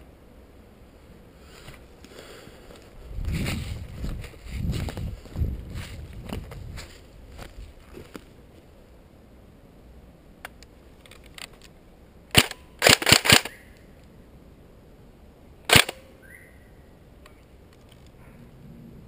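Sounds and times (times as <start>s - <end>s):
airsoft rifle shots: 12.3s - 13.6s, 15.7s - 16.1s.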